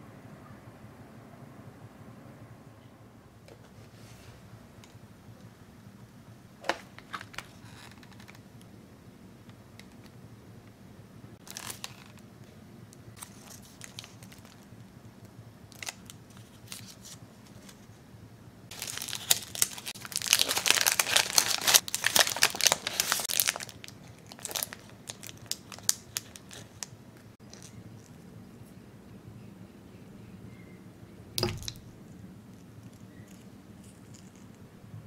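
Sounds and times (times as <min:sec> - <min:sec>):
candy wrapper crinkling: 0:11.4 - 0:12.2, 0:13.2 - 0:14.7, 0:15.7 - 0:17.8, 0:18.7 - 0:28.2.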